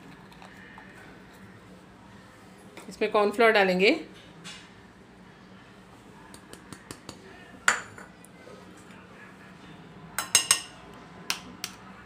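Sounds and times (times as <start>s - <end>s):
spoon clinking against ceramic bowl: 10.2s - 10.8s.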